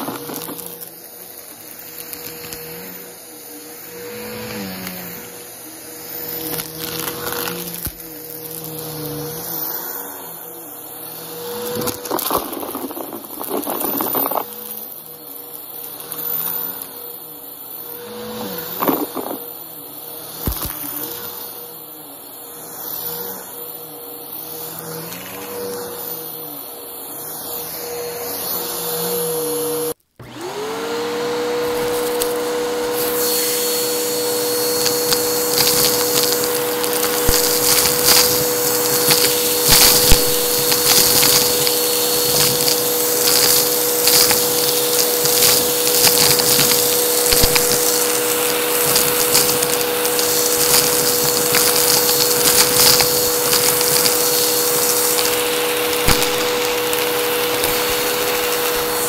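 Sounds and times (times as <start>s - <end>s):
vacuum cleaner motor whine: 0.0s - 59.0s.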